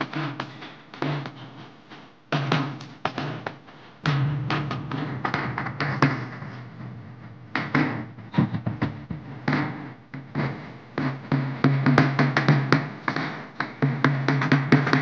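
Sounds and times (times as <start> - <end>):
dance music with drums: 0.0 - 15.0.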